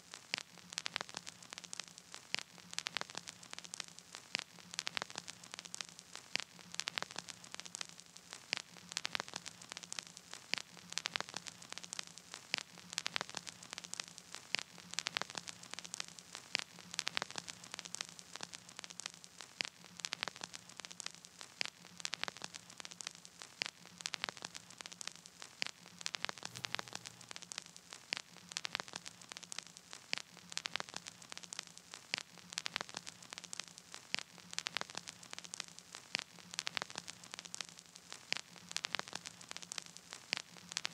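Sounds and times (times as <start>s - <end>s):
crackling static: 0.0s - 40.9s
faint low hum: 26.4s - 27.8s.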